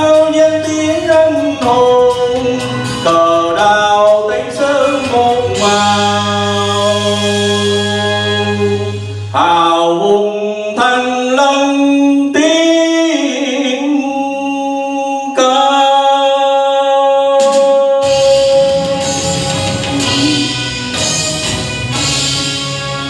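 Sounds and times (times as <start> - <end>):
instrumental accompaniment: 0.0 - 12.7, 17.3 - 23.0
man singing into a microphone: 0.0 - 20.9.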